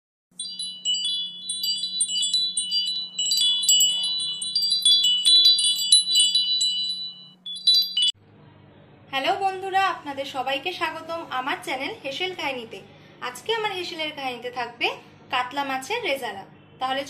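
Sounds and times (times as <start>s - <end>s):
bright tinkling chimes: 0.4s - 8.2s.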